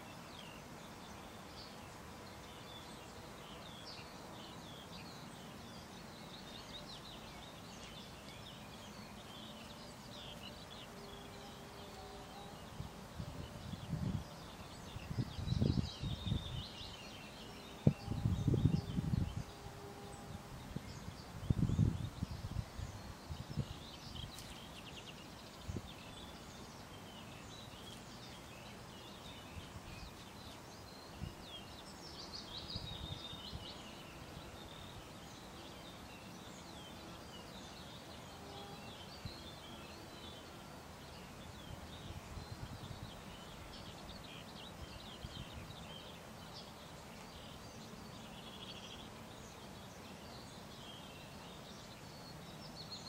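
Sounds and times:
faint outdoor hiss: 0.0s - 53.0s
songbirds chirping: 0.0s - 53.0s.

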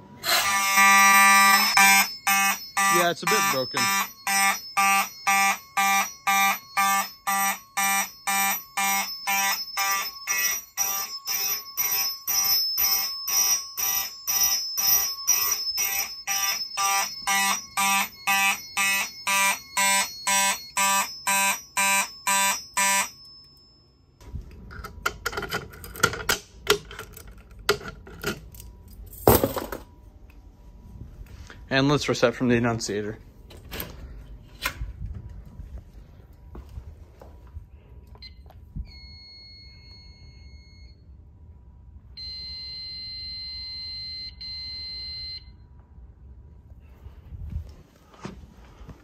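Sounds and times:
fire alarm horns pulsing: 0.0s - 23.2s, 42.0s - 45.8s.

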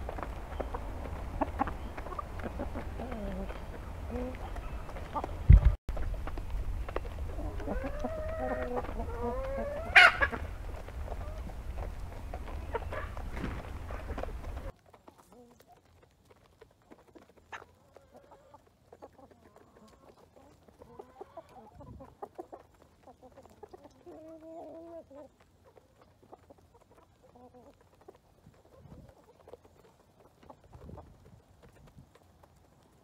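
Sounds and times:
chickens clucking: 0.0s - 33.0s
chicken call: 7.4s - 10.5s.

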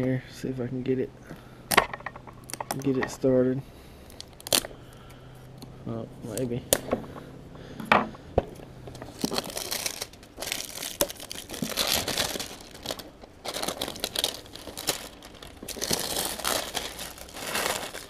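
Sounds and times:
plastic bag crinkling: 8.9s - 18.0s.

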